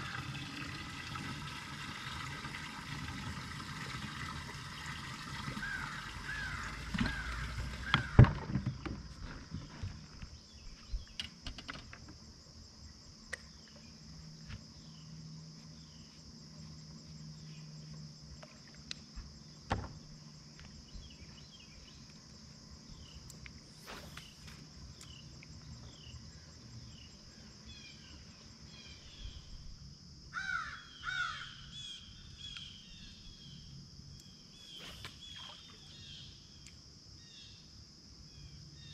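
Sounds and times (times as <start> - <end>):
insects humming: 0.0 - 38.9
birds calling: 5.0 - 9.0, 34.6 - 36.4
knocks and thump on boat deck: 7.9 - 9.1, 19.7 - 20.1.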